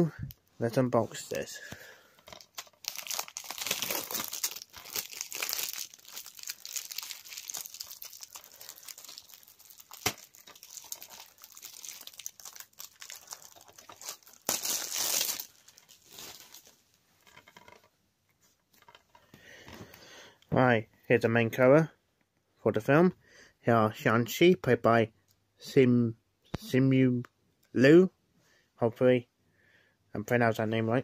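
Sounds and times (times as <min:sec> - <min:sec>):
plastic wrap crinkling and ripping: 0:02.4 - 0:16.8.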